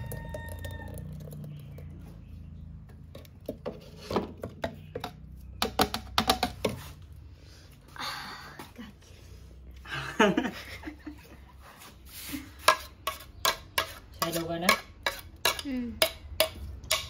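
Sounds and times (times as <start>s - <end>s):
kitchen utensils knocking and clicking: 3.2s - 6.8s, 12.7s - 17.0s.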